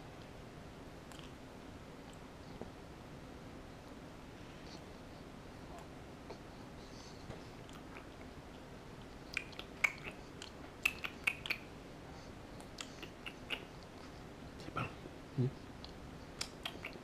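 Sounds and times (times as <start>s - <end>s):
infant sucking fingers: 9.3s - 11.7s, 12.6s - 14.1s.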